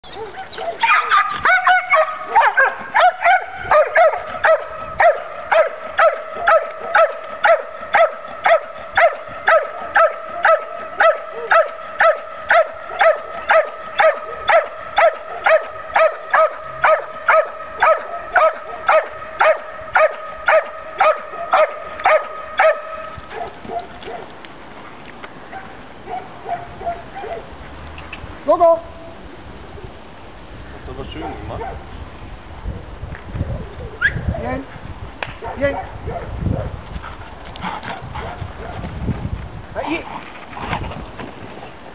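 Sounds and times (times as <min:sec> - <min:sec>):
dog barking: 0:00.1 - 0:24.3, 0:25.5 - 0:27.5, 0:31.2 - 0:31.8, 0:35.4 - 0:36.7.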